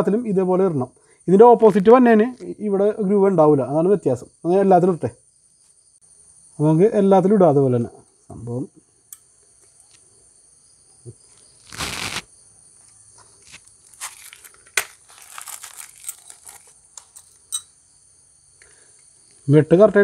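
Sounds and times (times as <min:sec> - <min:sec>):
crickets chirping: 0:00.0 - 0:20.0
scraping rustle of handling: 0:11.4 - 0:12.3, 0:13.3 - 0:17.4.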